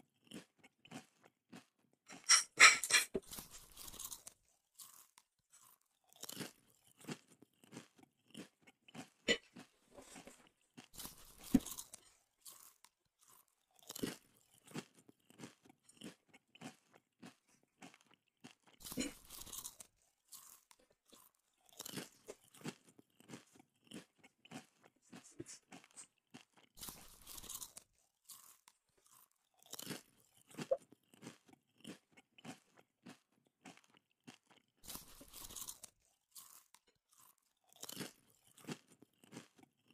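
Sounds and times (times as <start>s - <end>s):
person chewing crunchy food: 0.0s - 39.9s.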